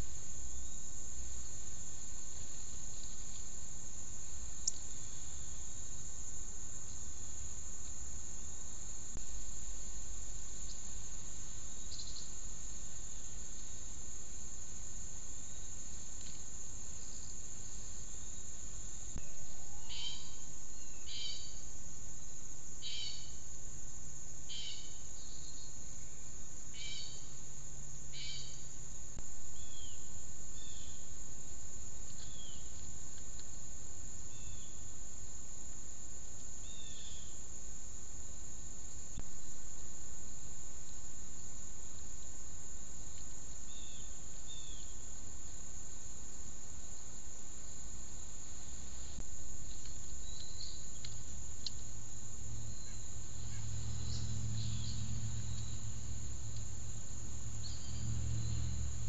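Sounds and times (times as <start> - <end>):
bird calling: 19.2 - 21.6, 52.5 - 59.0
high-pitched insect buzzing: 49.1 - 59.0.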